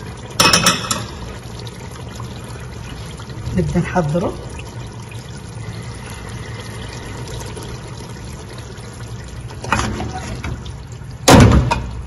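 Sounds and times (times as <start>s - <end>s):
stew simmering and sizzling: 0.0s - 11.3s.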